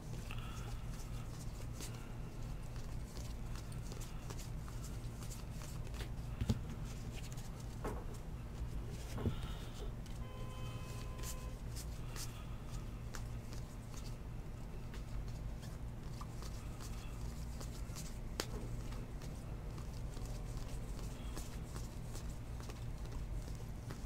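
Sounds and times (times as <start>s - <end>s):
steady low hum: 0.0s - 24.0s
trading cards clicking and rustling: 14.9s - 24.0s.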